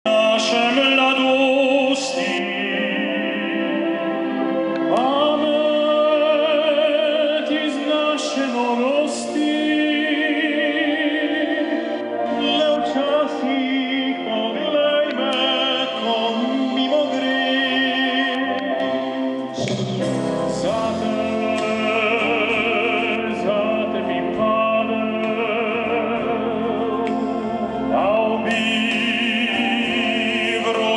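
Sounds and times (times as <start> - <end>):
male trio singing operatically: 0.1 - 30.9.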